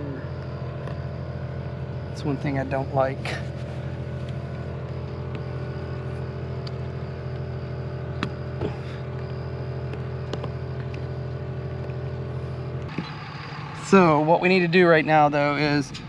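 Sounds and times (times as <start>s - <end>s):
vehicle engine idling hum: 0.0s - 16.0s.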